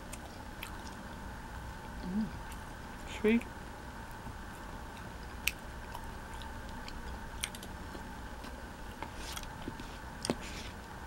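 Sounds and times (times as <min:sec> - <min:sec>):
chewing: 0:00.0 - 0:01.2, 0:04.0 - 0:10.8
faint steady hum: 0:00.0 - 0:11.0.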